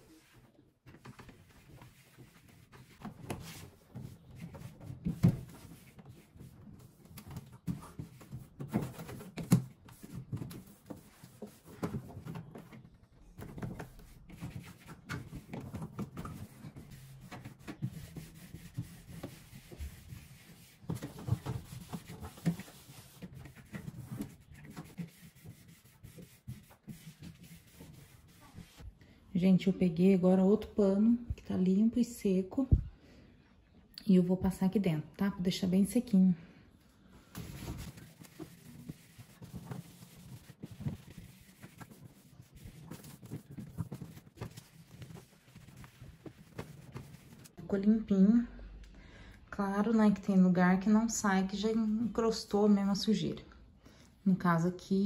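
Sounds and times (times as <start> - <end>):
cloth scrubbing plastic: 1.0 - 28.8, 37.4 - 47.6.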